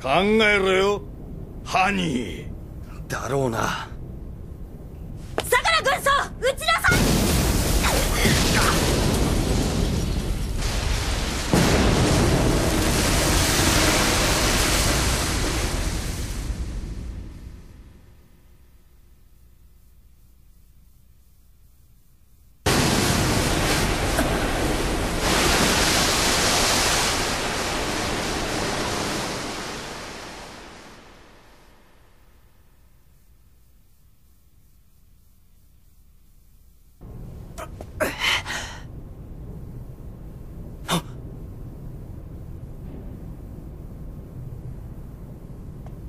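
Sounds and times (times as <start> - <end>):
rush of surging water and spray: 10.5 - 16.1, 22.7 - 31.8.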